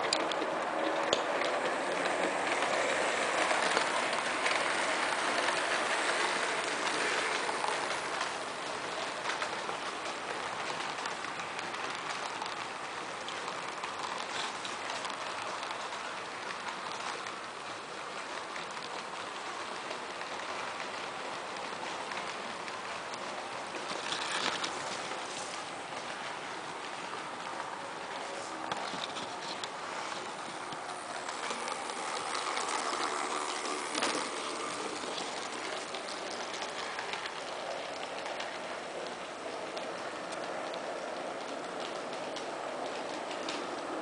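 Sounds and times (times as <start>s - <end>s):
model train motor whir: 0.0s - 44.0s
wheels clicking over rail joints: 0.0s - 44.0s.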